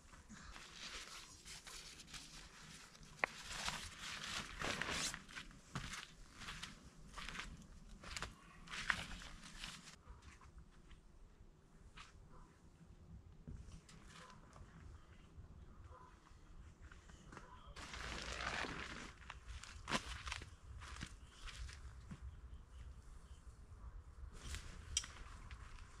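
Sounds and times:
camping gear rustling: 0.1 - 10.0, 17.8 - 21.9.

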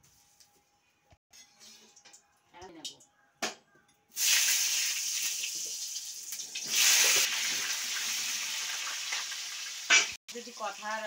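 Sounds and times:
potatoes sizzling in hot oil: 4.2 - 11.0.

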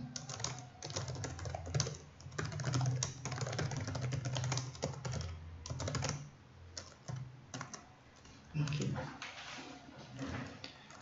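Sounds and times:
typing on computer keyboard: 0.0 - 7.9.

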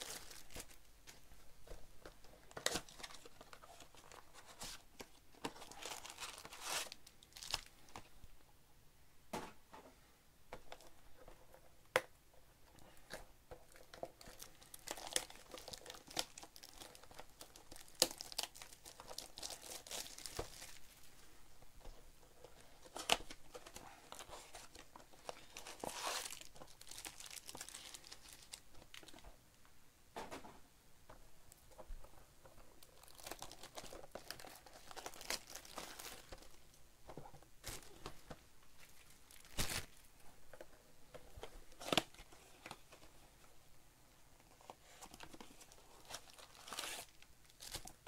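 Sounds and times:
plastic wrappers crinkling and tearing: 0.0 - 0.9, 2.2 - 8.1, 13.0 - 21.0, 22.5 - 29.2, 32.8 - 36.6, 37.6 - 40.1, 44.6 - 48.0.

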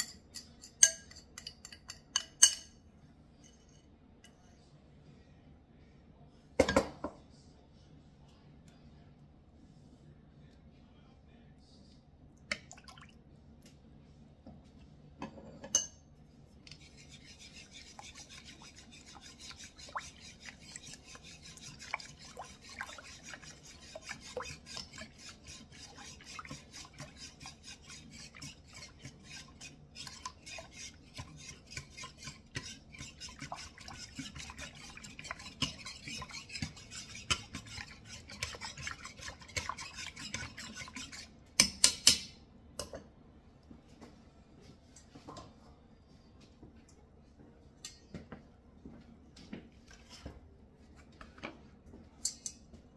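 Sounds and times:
whisk scraping ceramic bowl: 0.0 - 2.7, 16.6 - 41.4.

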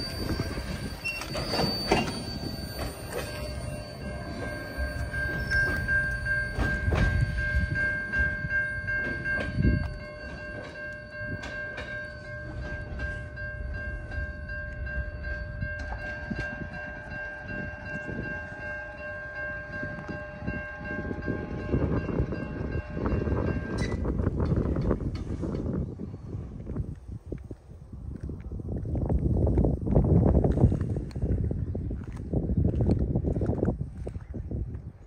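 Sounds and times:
high-pitched wheel squeal: 0.0 - 7.7
train wheels rumbling on track: 0.0 - 34.0.

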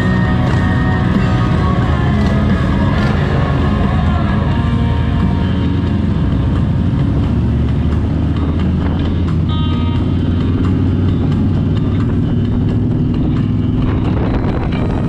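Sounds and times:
motorcycle engine running: 0.0 - 15.0
wind rush over microphone: 10.4 - 15.0.

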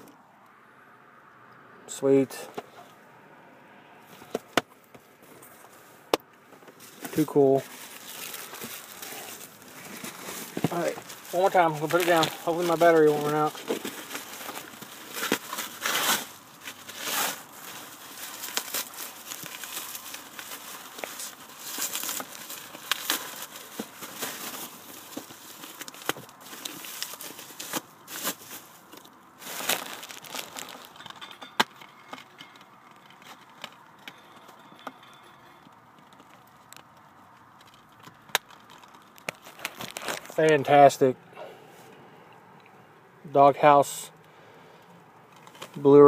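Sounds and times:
bubble wrap crinkling: 6.7 - 31.3, 32.0 - 40.7.

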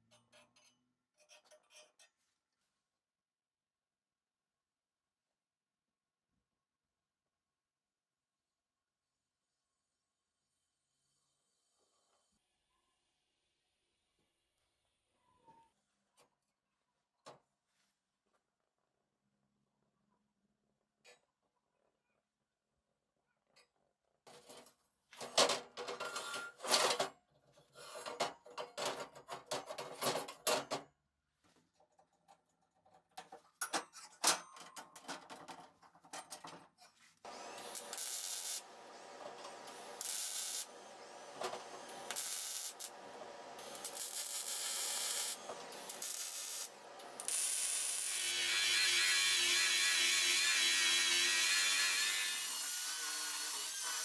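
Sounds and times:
power tool grinding steel: 37.3 - 54.0
arc welding crackle and hiss: 37.5 - 51.3.

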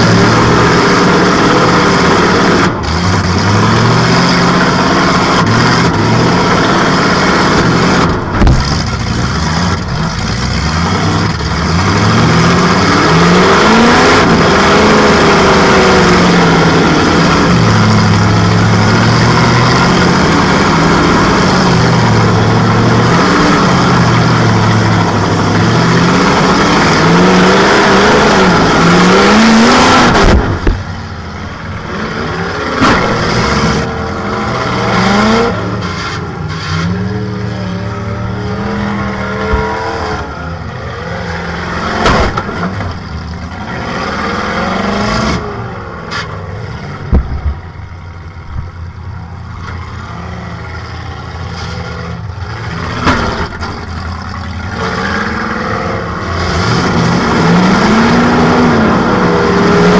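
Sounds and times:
car engine revving: 0.0 - 59.9
hard thump: 8.3 - 8.8, 30.2 - 31.0, 47.1 - 47.6.

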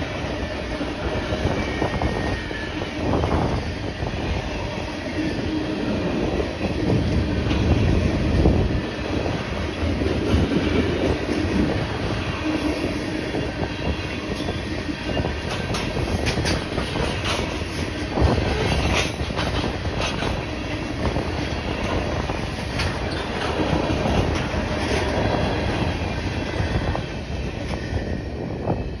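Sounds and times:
train wheels rumbling on rails: 0.0 - 29.0
wheels clicking over rail joints: 15.1 - 26.1.

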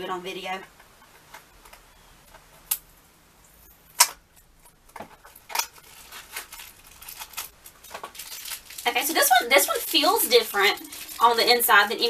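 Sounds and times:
packaging rustling: 4.9 - 12.0.

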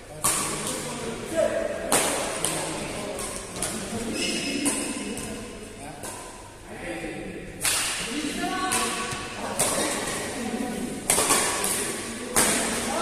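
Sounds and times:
racket hitting shuttlecock: 0.2 - 0.8, 1.9 - 6.4, 7.6 - 10.4, 11.0 - 13.0.

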